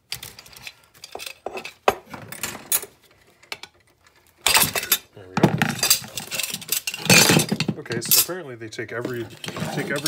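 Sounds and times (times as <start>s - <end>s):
metal tubing clanking and scraping: 3.4s - 8.4s, 9.0s - 10.0s.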